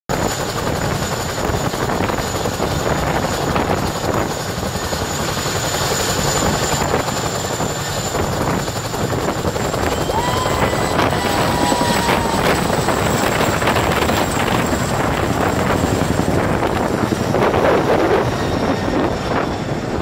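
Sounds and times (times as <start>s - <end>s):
helicopter rotor chop: 0.1s - 20.0s
high turbine whine: 0.1s - 20.0s.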